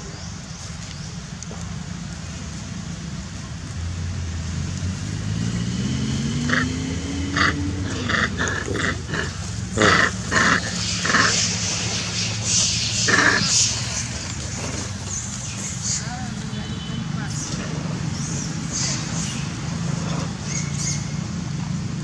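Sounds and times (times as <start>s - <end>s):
low engine hum: 0.0s - 22.0s
macaques squealing: 6.5s - 16.4s, 17.4s - 21.3s.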